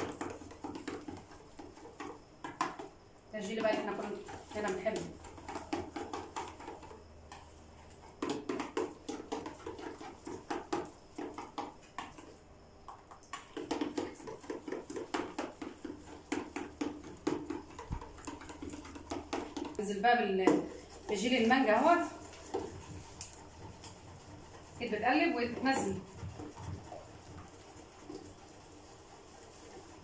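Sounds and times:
stick scraping a metal bowl: 20.4s - 30.0s.

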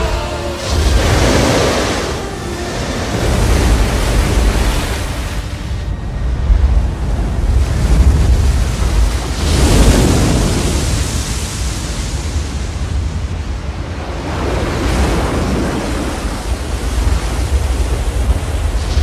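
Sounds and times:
deep low rumble: 0.0s - 10.0s
rushing churning water: 0.0s - 19.0s
storm wind: 0.0s - 19.0s.

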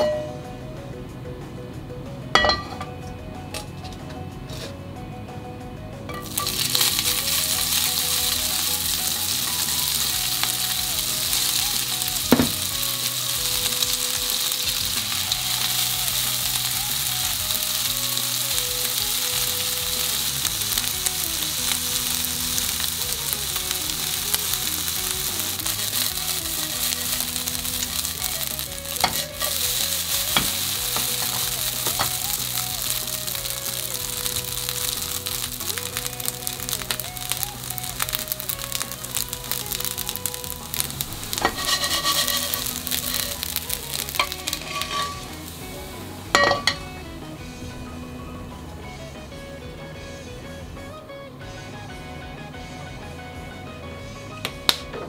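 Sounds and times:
noodles sizzling in oil: 6.2s - 47.0s.

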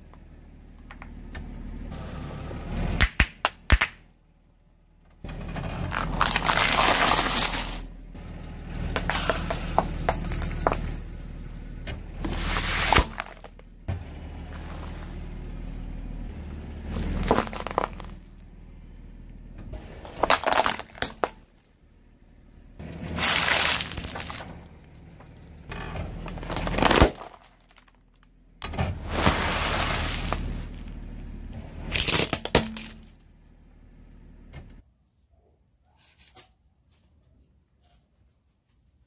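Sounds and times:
car engine droning: 0.0s - 34.8s
car tyre crushing small objects: 5.6s - 7.9s, 8.7s - 11.2s, 12.1s - 15.5s, 16.8s - 18.6s, 19.8s - 21.8s, 23.0s - 33.3s.

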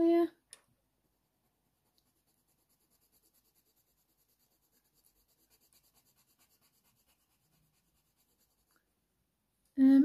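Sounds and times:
colored pencil scratching on paper: 1.2s - 8.8s.

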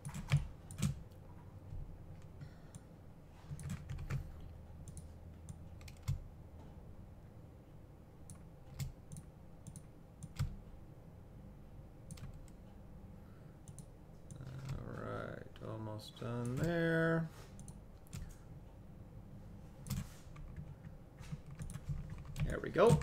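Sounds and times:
computer mouse and keyboard clicks: 3.5s - 6.2s, 19.8s - 23.0s.

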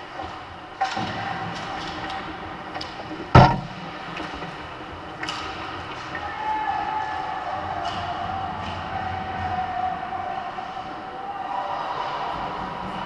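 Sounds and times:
hockey sticks clacking: 7.8s - 8.9s.

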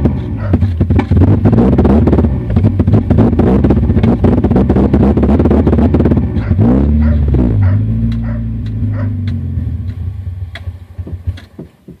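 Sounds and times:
engine misfire pops: 0.0s - 4.5s, 5.4s - 12.0s
car engine running unevenly: 0.0s - 11.9s.

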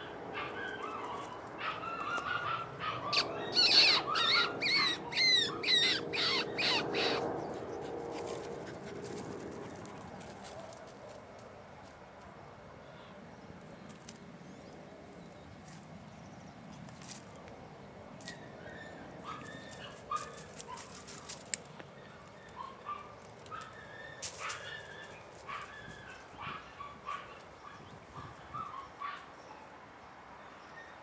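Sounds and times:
puppy yipping and whining: 0.4s - 7.3s, 18.6s - 21.0s, 22.4s - 29.3s.

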